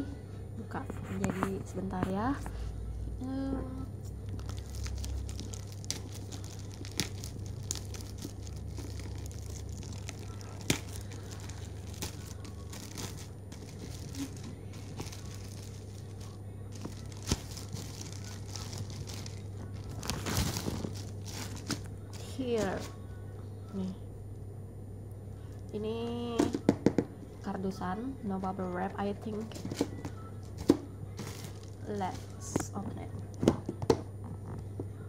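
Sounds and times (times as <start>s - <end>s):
plastic wrapping crinkling: 4.1s - 23.0s, 29.2s - 33.6s.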